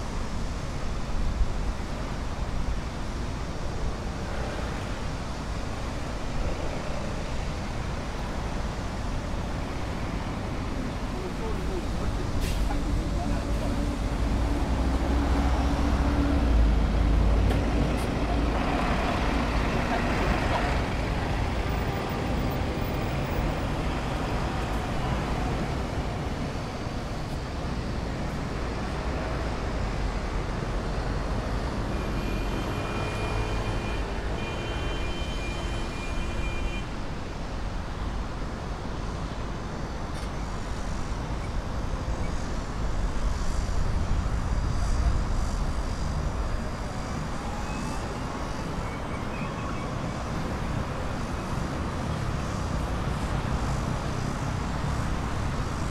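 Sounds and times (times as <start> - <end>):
road traffic rumble: 0.0 - 55.9.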